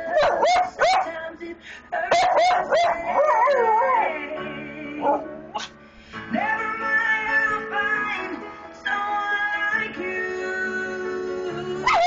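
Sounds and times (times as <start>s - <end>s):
dog yipping and howling: 0.0s - 1.2s, 2.1s - 4.2s
recorded music: 0.0s - 12.0s.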